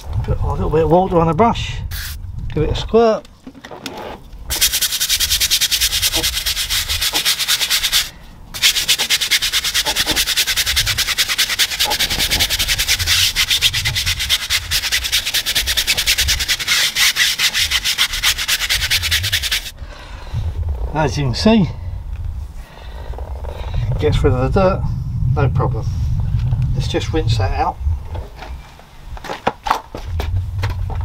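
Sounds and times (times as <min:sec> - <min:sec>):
brush scrubbing wet tyre: 0:04.5 - 0:19.8.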